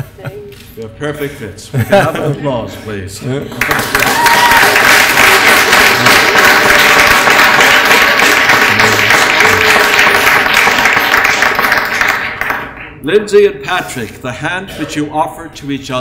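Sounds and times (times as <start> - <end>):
crowd applauding: 3.5 - 13.0.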